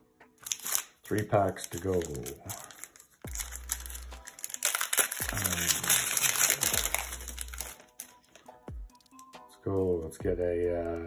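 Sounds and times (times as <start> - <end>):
background music: 0.0 - 11.0
foil wrapper crinkling: 0.4 - 9.1.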